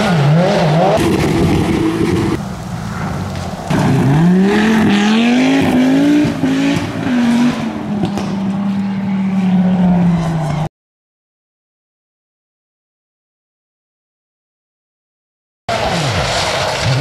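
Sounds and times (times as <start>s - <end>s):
rally car engine accelerating: 0.0s - 10.7s, 15.7s - 17.0s.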